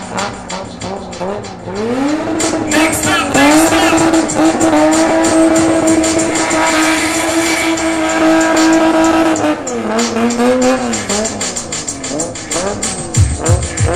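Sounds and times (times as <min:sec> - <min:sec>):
car engine revving: 0:00.0 - 0:13.9
tyres screeching: 0:00.2 - 0:09.2.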